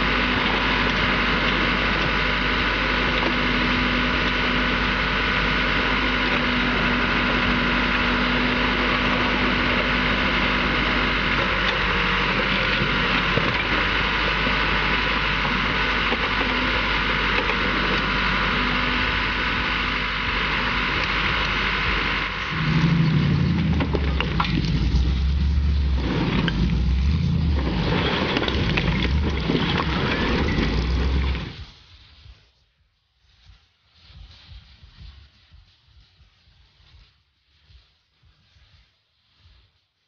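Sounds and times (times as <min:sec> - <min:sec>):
diesel engine running: 0:00.0 - 0:31.7
droning tone: 0:00.0 - 0:31.7
bucket digging through rock: 0:22.6 - 0:31.6.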